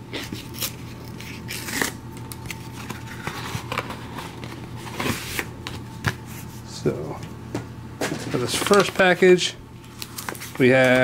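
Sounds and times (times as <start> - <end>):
cardboard tearing: 0.2 - 3.8
paperboard rustling and crackling: 8.0 - 9.3, 9.9 - 11.0.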